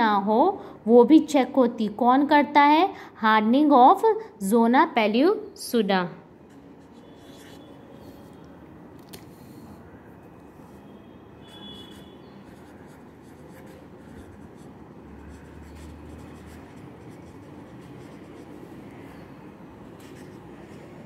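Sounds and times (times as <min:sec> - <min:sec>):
low background noise: 0:00.0 - 0:21.0
marker pen scratching on paper: 0:06.5 - 0:08.4, 0:10.6 - 0:21.0.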